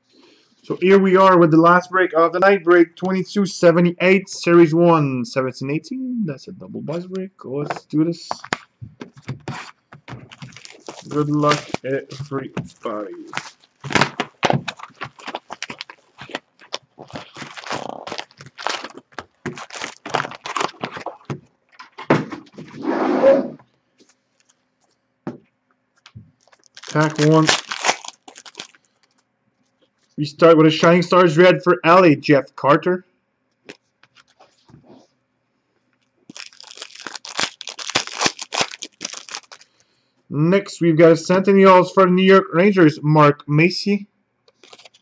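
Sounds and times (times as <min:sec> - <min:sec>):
cards rustling and snapping: 0:07.6 - 0:22.7, 0:26.0 - 0:29.2, 0:36.3 - 0:39.8, 0:44.5 - 0:45.0
plastic wrap crinkling: 0:07.7 - 0:22.1, 0:26.0 - 0:29.3, 0:36.3 - 0:39.8, 0:44.5 - 0:45.0.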